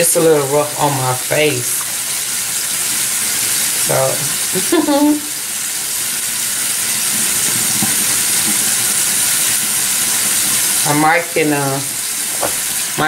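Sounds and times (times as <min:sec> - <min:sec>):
facial steamer hissing: 0:00.9 - 0:13.0.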